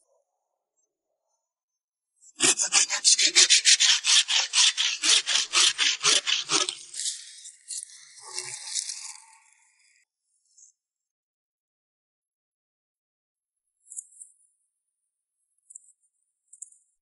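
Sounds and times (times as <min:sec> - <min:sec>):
hand saw cutting branch: 0:02.4 - 0:09.2.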